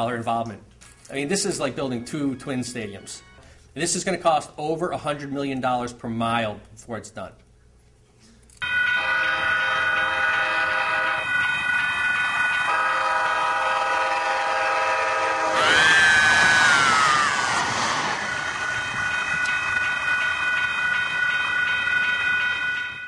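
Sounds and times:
light rail train passing: 0:08.6 - 0:23.0
train horn: 0:08.9 - 0:11.5, 0:12.6 - 0:16.6
sustained chord of high tones: 0:17.0 - 0:23.0.

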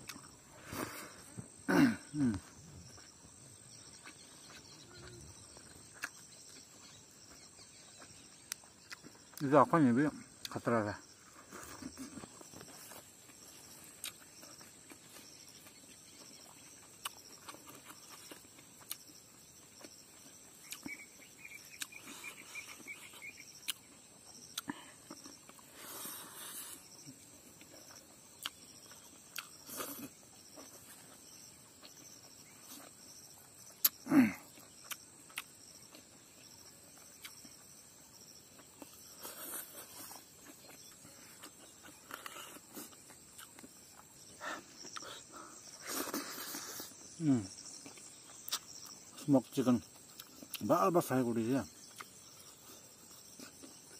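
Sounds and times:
insects chirring: 0:00.0 - 0:53.9
clicks and smacks of eating: 0:19.8 - 0:23.9, 0:27.6 - 0:31.0, 0:33.7 - 0:36.2, 0:47.8 - 0:49.0, 0:51.8 - 0:53.9.

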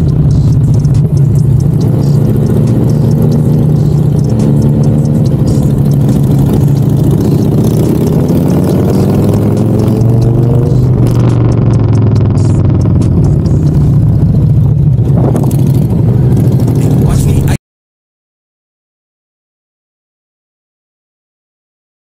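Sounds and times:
motorcycle engine running: 0:00.0 - 0:17.6.

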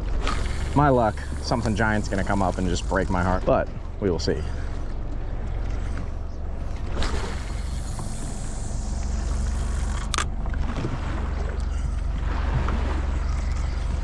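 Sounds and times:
boat engine droning: 0:00.0 - 0:14.0
wind and water noise: 0:00.0 - 0:14.0.

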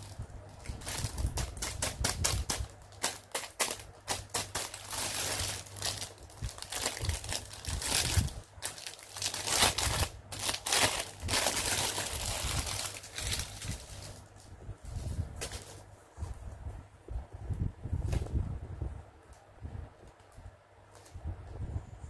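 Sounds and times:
plastic bag crinkling: 0:00.0 - 0:15.8.

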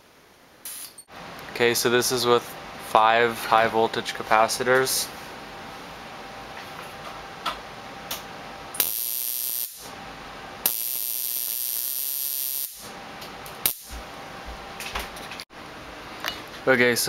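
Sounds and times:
high-voltage arc buzzing: 0:08.8 - 0:10.0, 0:10.6 - 0:13.0, 0:13.6 - 0:14.0.

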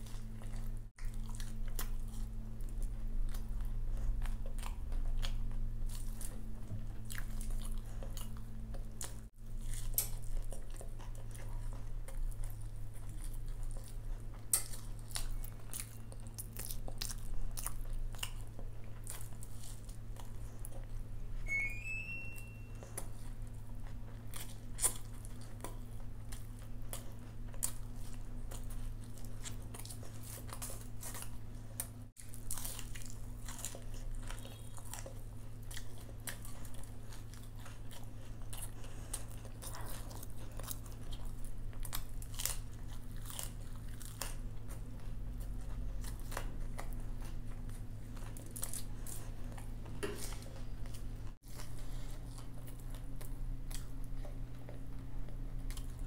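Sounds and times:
crunchy food chewing: 0:00.0 - 0:56.0
low steady hum: 0:00.0 - 0:56.0.

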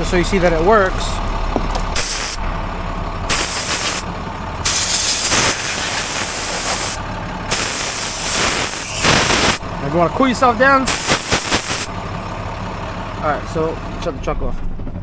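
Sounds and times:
truck engine idling: 0:00.0 - 0:15.0
compressed air blasts hissing: 0:02.0 - 0:02.4, 0:03.3 - 0:04.0, 0:04.6 - 0:09.6, 0:10.9 - 0:11.9.

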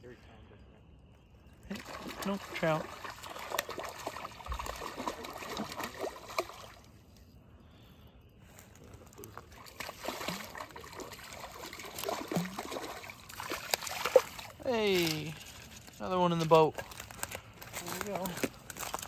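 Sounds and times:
fish splashing in water: 0:01.7 - 0:06.9, 0:09.2 - 0:14.6.

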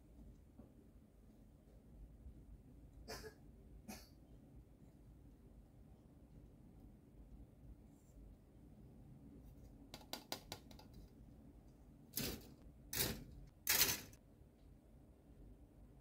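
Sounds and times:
plastic runners rattling: 0:12.2 - 0:14.2.

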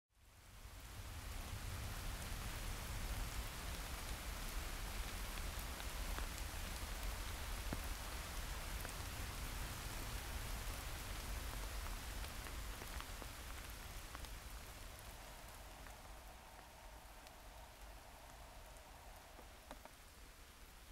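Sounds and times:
rain hissing in woodland: 0:00.1 - 0:20.9
rain drops ticking: 0:00.2 - 0:20.9
low rumble: 0:13.5 - 0:19.7.

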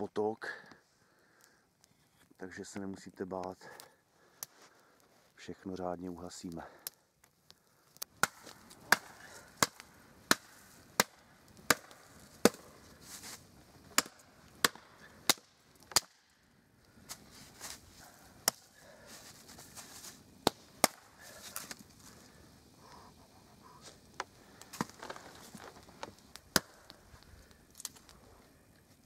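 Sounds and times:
hatchet chopping branch: 0:08.2 - 0:12.7, 0:13.9 - 0:16.2, 0:18.4 - 0:18.7, 0:20.4 - 0:21.8, 0:26.5 - 0:26.9.

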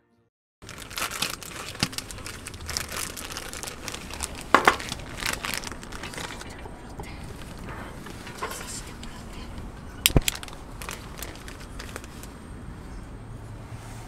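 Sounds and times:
plastic packaging crinkling: 0:00.6 - 0:12.4
handling clicks: 0:10.0 - 0:10.7.

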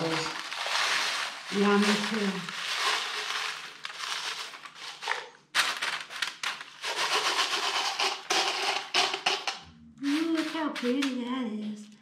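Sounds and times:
crushed glass pouring onto paper: 0:00.0 - 0:09.5.

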